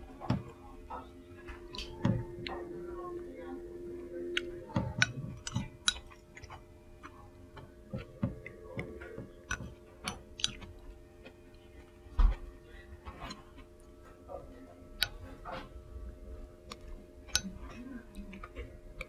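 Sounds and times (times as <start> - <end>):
chopsticks and spoon tapping bowl: 0.2 - 2.7, 4.3 - 10.7, 16.7 - 19.0.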